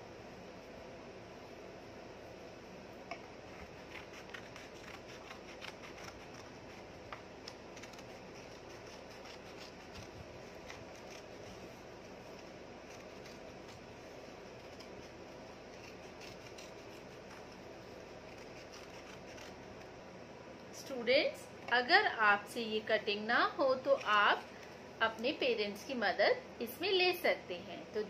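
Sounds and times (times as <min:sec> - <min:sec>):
steady background hiss: 0:00.0 - 0:28.0
scissors snipping paper: 0:03.6 - 0:11.6, 0:12.3 - 0:13.9, 0:14.6 - 0:19.9.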